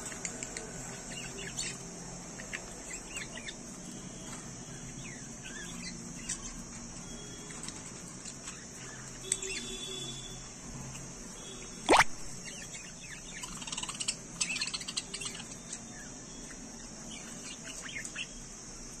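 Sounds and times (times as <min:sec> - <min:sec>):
budgerigars chirping: 0:01.0 - 0:06.6, 0:12.5 - 0:18.4.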